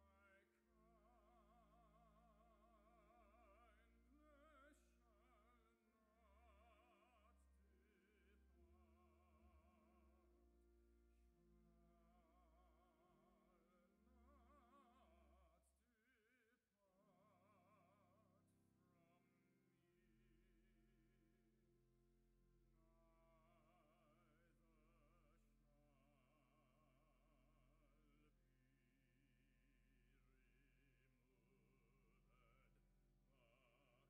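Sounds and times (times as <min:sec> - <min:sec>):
person singing a hymn: 0:00.0 - 0:20.3.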